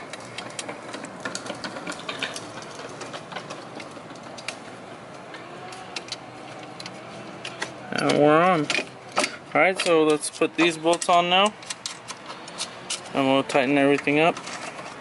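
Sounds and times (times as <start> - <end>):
background noise: 0.0 - 15.0
small metal hardware clicking: 5.7 - 13.2.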